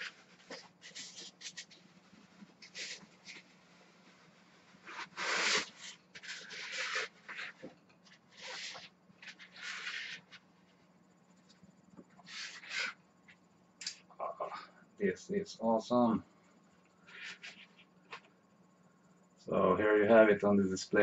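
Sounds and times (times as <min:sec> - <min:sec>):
rubber mask rubbing and rustling: 0:00.0 - 0:13.4, 0:17.1 - 0:18.3
faint steady hum: 0:00.0 - 0:21.0.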